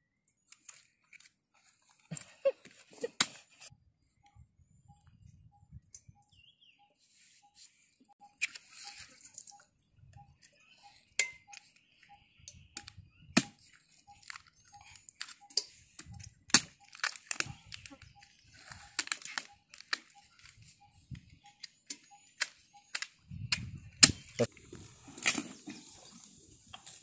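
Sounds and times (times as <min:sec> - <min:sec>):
fibrous husk crunching and cracking: 0:12.8 - 0:20.8.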